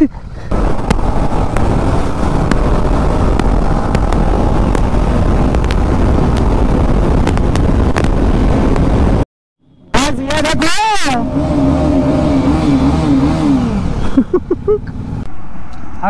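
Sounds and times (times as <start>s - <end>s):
motorcycle engine at speed: 0.0s - 9.2s, 11.1s - 14.4s
wind noise on microphone: 0.4s - 9.2s.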